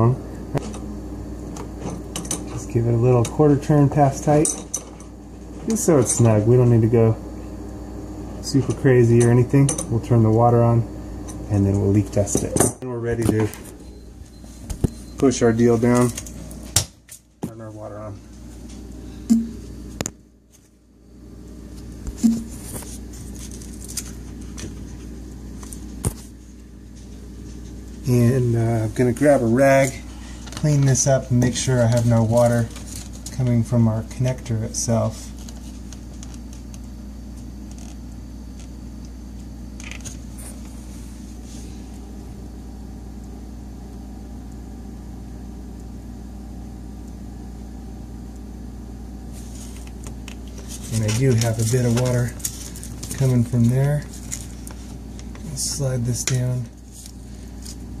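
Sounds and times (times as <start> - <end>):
steady low hum: 0.0 - 58.0
rag wiping plastic: 49.3 - 57.9.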